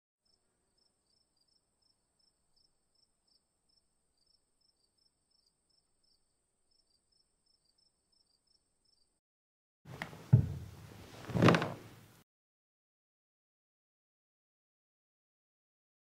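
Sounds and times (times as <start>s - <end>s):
faint crickets chirping: 0.2s - 9.2s.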